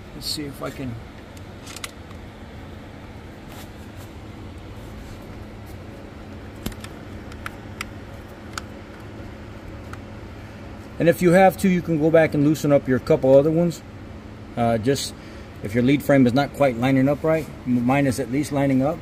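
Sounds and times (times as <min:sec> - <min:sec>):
steady low hum: 0:00.0 - 0:19.0
light metallic clicks and taps: 0:06.6 - 0:09.1.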